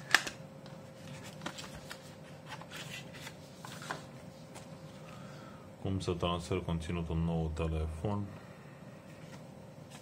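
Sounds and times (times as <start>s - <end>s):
paper and cardboard rustling: 0.9s - 4.8s.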